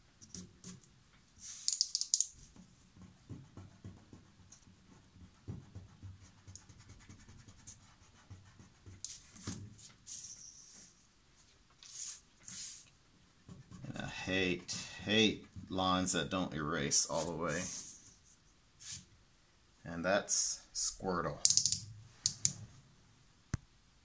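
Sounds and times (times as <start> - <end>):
marker scratching on paper: 1.4 - 11.0, 11.8 - 14.8, 17.1 - 19.1
soft knocks of hand and paper: 2.4 - 7.2
paper sliding on a table: 11.8 - 12.9.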